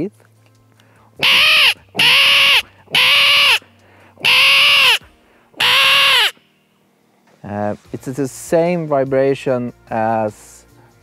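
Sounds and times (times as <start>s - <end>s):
harsh raspy bird call imitation: 1.2s - 3.6s, 4.2s - 6.4s.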